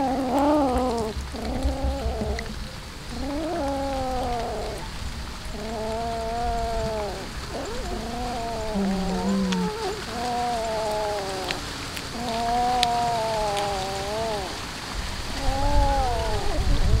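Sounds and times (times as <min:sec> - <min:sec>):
chewing crunches: 0:00.0 - 0:04.8, 0:05.5 - 0:14.6
cat yowling: 0:00.0 - 0:14.7, 0:15.3 - 0:17.0.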